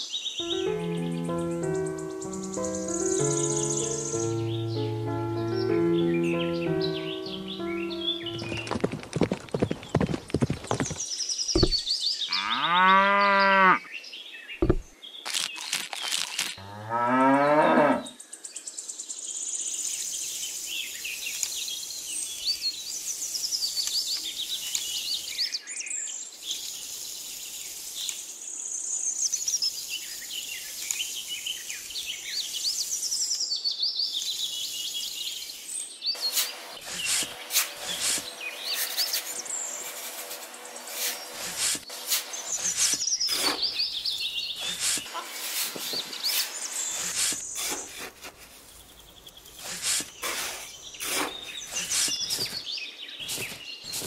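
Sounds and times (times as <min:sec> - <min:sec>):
birds chirping: 0:00.0 - 0:54.0
cattle mooing: 0:12.3 - 0:13.8.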